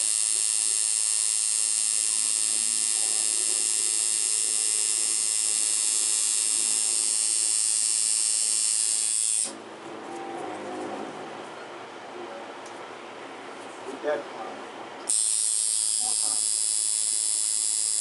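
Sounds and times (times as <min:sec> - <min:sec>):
tattoo machine buzzing: 0:00.0 - 0:09.6, 0:15.1 - 0:18.0.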